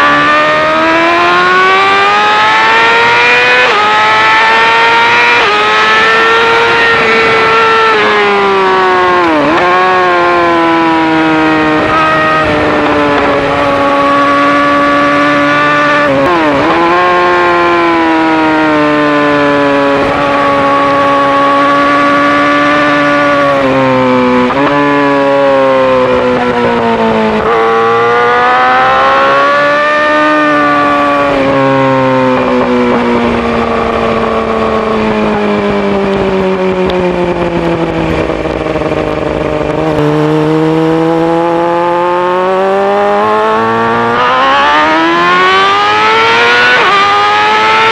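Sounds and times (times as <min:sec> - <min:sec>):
motorcycle engine revving: 0:00.0 - 0:47.9.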